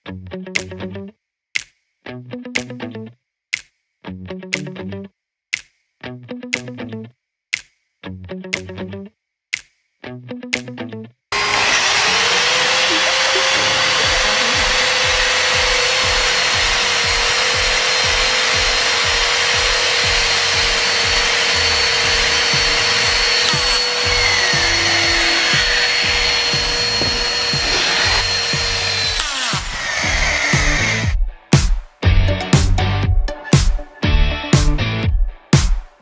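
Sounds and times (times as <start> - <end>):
power drill whining: 11.3 - 31.2.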